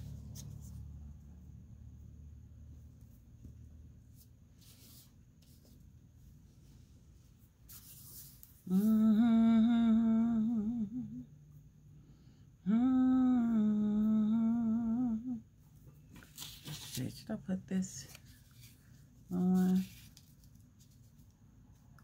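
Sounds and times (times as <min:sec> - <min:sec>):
woman humming: 0:08.7 - 0:11.3, 0:12.6 - 0:15.5, 0:19.3 - 0:19.9
paper rustling: 0:16.0 - 0:17.3, 0:17.9 - 0:21.8.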